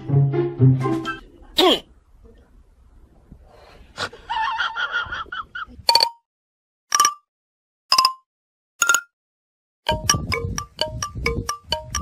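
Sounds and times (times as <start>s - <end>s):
descending run of notes: 0.0s - 1.3s.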